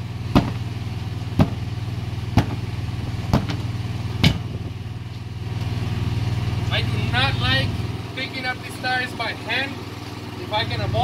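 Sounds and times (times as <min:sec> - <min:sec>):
steady low hum: 0:00.0 - 0:11.0
hammer striking tire bead: 0:00.3 - 0:04.6.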